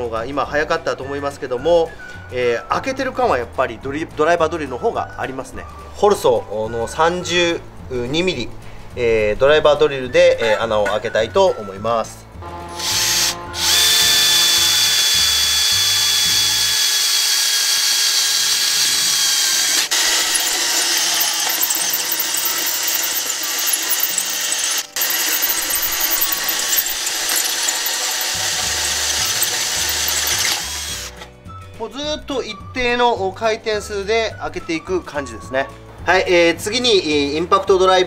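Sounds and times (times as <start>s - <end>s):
drill hole saw cutting steel: 12.7s - 31.3s.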